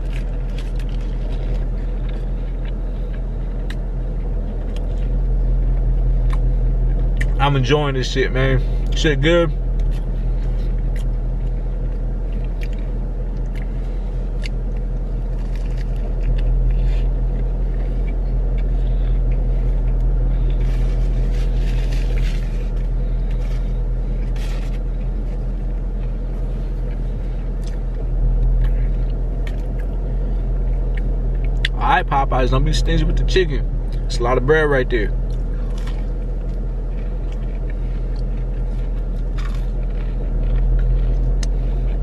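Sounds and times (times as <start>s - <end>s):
person chewing: 0.0s - 7.4s, 9.6s - 31.8s, 35.2s - 42.0s
car engine idling: 0.0s - 42.0s.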